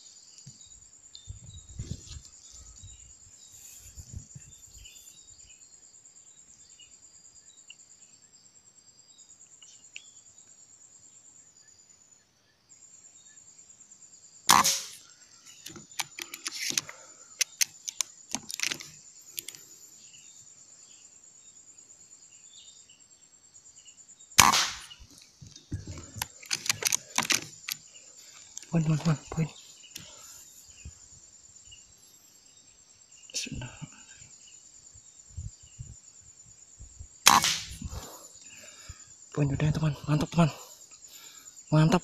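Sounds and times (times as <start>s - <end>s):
high insect buzz: 0.0s - 12.1s, 12.7s - 42.0s
rifle shots: 14.5s - 15.0s, 24.4s - 25.0s, 37.3s - 37.8s
light clicks: 15.6s - 19.6s, 25.2s - 27.8s.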